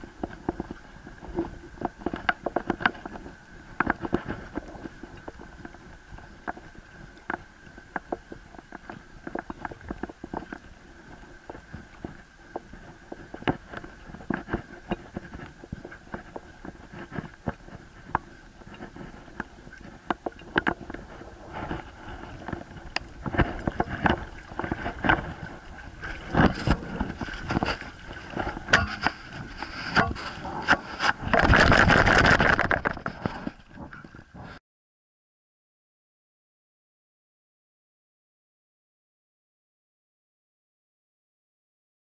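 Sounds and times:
knocks and scrapes on camera: 13.4s - 34.6s
loud rattling noise: 31.3s - 33.1s.

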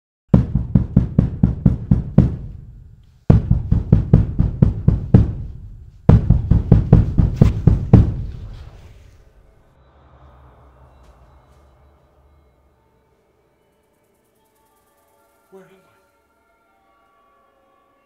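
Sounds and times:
loud rapid knocking: 0.3s - 8.4s.

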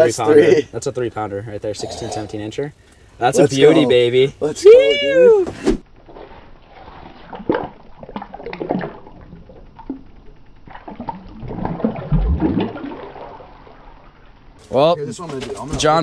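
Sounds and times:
fish splashing in water: 6.1s - 14.3s.

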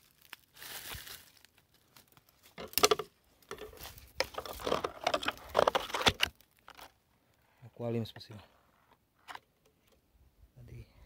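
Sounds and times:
dry leaves and twigs crunching: 0.0s - 7.0s
branches scraping: 0.0s - 7.4s.

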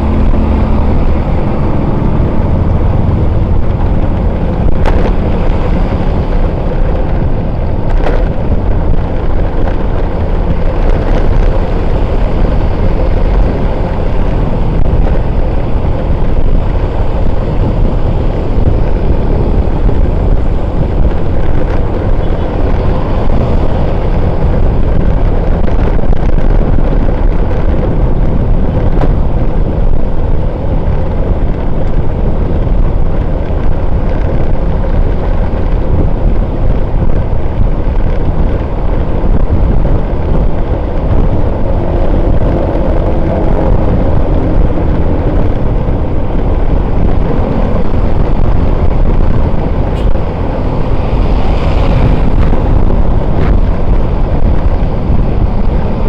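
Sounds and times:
motorbike engines and road rumble: 0.0s - 56.0s
wind buffeting microphone: 0.0s - 56.0s.

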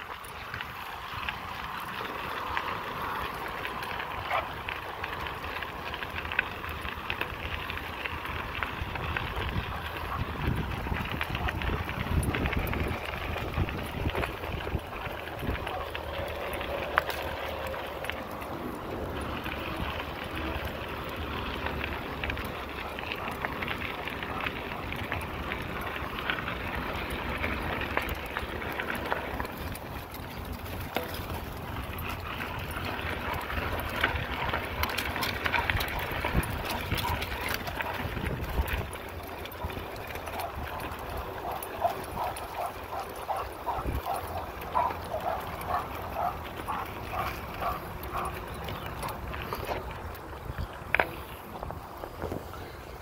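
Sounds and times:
bike clicks and rattles: 0.0s - 53.0s
bike rolling over gravel: 0.0s - 53.0s
wind on microphone: 8.8s - 15.9s, 33.5s - 41.2s.

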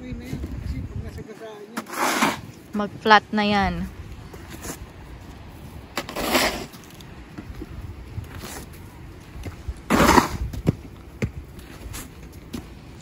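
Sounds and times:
snow shovel scraping pavement: 1.5s - 2.8s, 4.2s - 5.0s, 5.6s - 7.0s, 9.8s - 10.5s.

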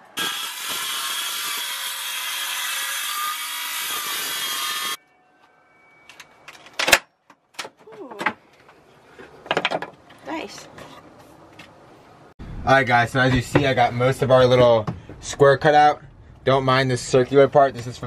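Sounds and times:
circular saw cutting: 0.0s - 5.0s
knocks and clunks: 9.4s - 11.8s, 14.8s - 15.4s.

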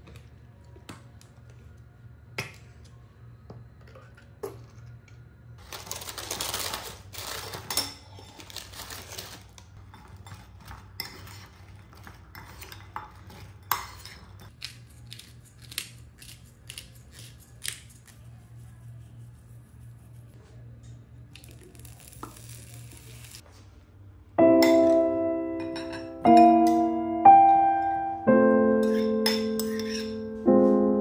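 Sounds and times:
dishes and utensils clinking: 9.8s - 14.6s, 24.5s - 28.0s, 28.6s - 30.8s.

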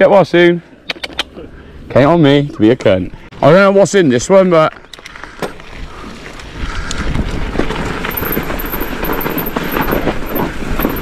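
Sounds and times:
bike tyres on rough trail: 4.6s - 11.0s
wind on microphone: 5.8s - 11.0s
bike rattles and knocks: 6.9s - 11.0s.

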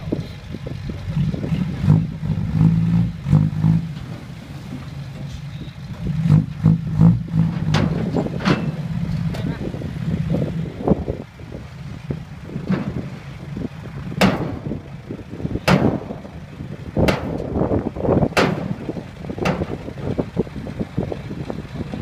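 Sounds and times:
truck engine humming: 0.0s - 22.0s
sharp knocks: 14.2s - 14.8s, 15.6s - 16.3s, 17.0s - 17.5s, 18.3s - 19.8s.

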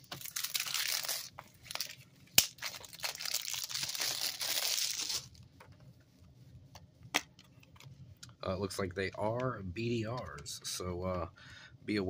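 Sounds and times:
plastic shrink wrap crinkling: 0.0s - 5.4s.

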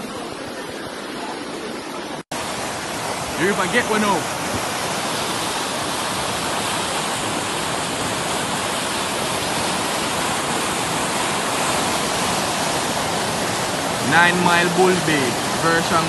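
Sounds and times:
flood water rushing: 0.0s - 16.0s.

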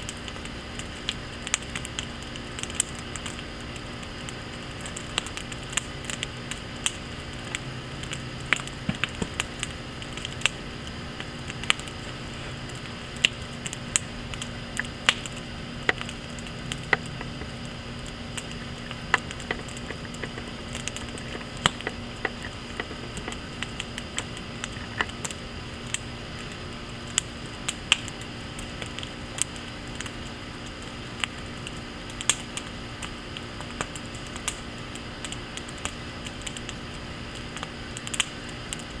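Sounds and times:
firewood crackling and popping: 0.0s - 39.0s.

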